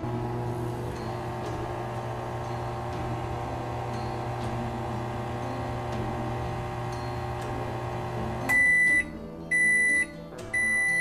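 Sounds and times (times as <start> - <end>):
microwave oven humming: 0.0 - 10.0
high microwave beep: 6.7 - 11.0.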